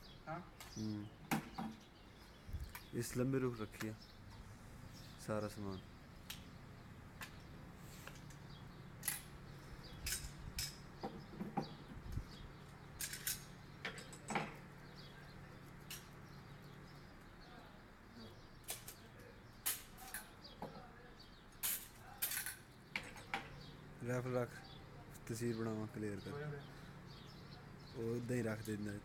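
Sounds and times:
metal rifle parts clicking: 0:09.0 - 0:10.9, 0:13.0 - 0:14.6, 0:18.6 - 0:20.4.

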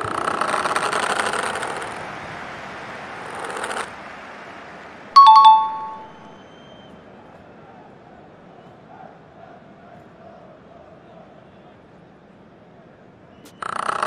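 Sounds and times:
two-note ding-dong chime: 0:05.2 - 0:06.2.

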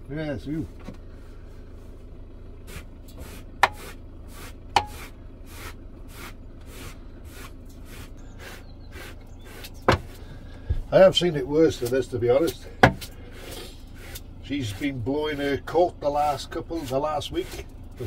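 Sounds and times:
brush scrubbing rug: 0:02.7 - 0:09.7, 0:13.3 - 0:18.0.

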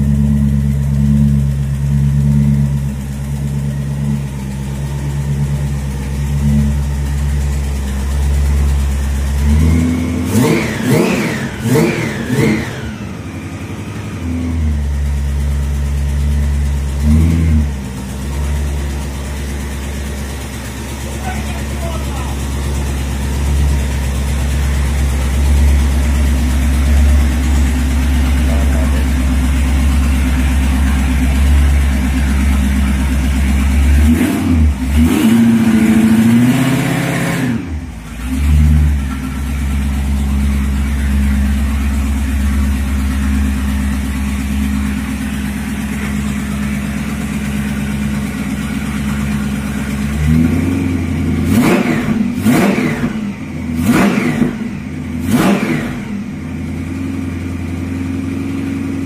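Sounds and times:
car engine idling and revving: 0:00.0 - 0:59.0.

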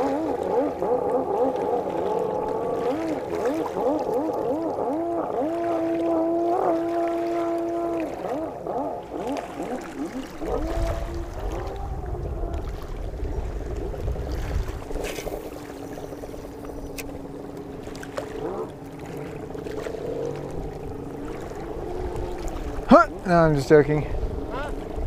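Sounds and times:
wind rumble on microphone: 0:10.3 - 0:25.0.

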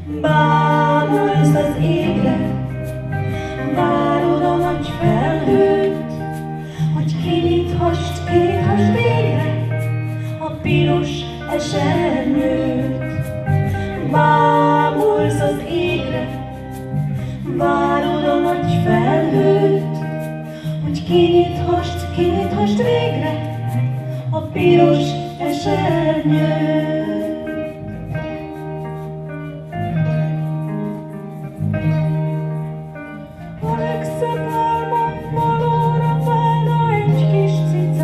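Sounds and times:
women singing into microphones: 0:00.0 - 0:28.8, 0:33.4 - 0:38.0
electric guitars: 0:00.0 - 0:38.0.

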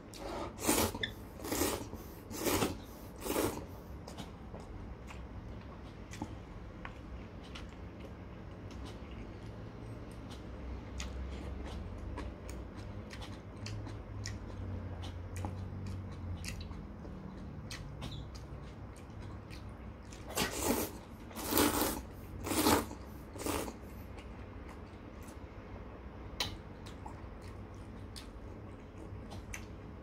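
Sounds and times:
quiet chewing: 0:00.1 - 0:25.4, 0:26.4 - 0:30.0
person slurping noodles: 0:00.2 - 0:03.7, 0:20.3 - 0:23.8.

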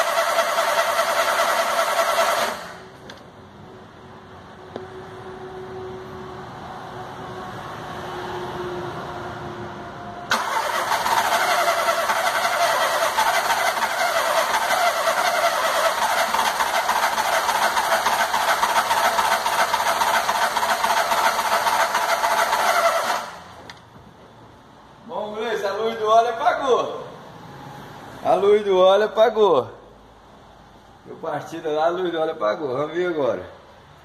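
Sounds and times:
starter motor cranking engine: 0:00.0 - 0:02.9, 0:10.3 - 0:23.6.

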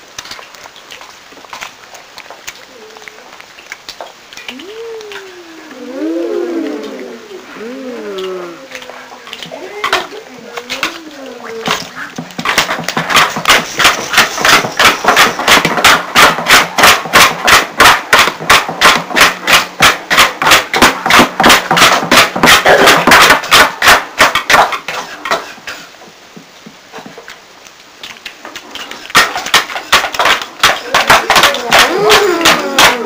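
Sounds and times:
rapid percussive strokes: 0:11.6 - 0:25.4, 0:29.1 - 0:33.0.

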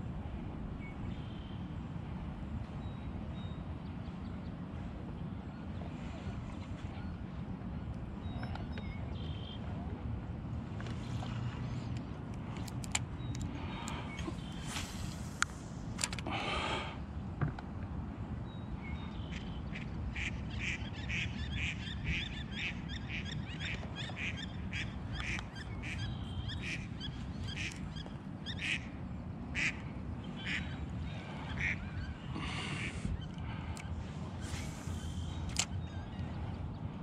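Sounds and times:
ducks quacking: 0:19.3 - 0:27.8, 0:28.5 - 0:28.9, 0:29.5 - 0:33.7.

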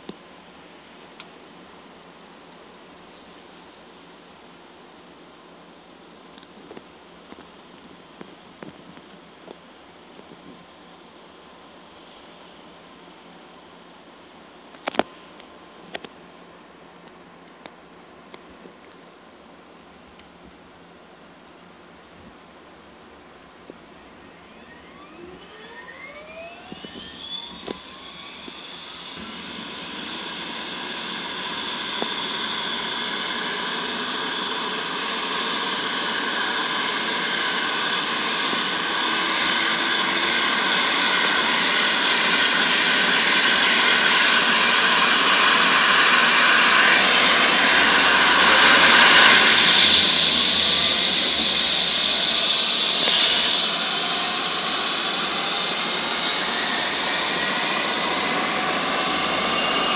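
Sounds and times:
helicopter turbine whine: 0:23.6 - 0:59.9
helicopter rotor spinning: 0:24.0 - 0:59.9.

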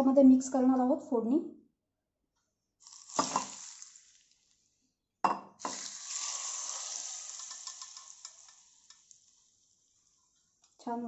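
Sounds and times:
hot oil hissing and crackling: 0:02.8 - 0:04.6, 0:05.6 - 0:10.6.

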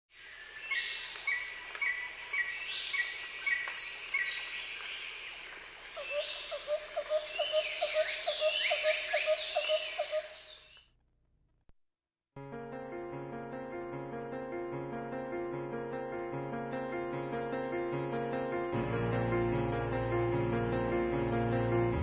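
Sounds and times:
chorus of birds singing: 0:00.2 - 0:10.8.

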